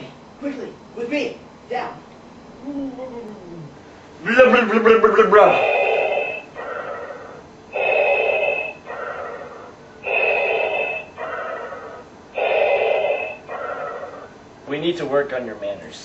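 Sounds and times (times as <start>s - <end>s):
respirator breathing: 5.3s - 14.5s.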